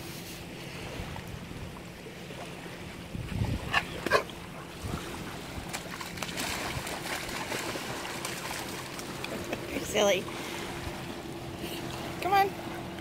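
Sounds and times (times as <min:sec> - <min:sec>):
dog splashing in water: 0:04.0 - 0:09.7.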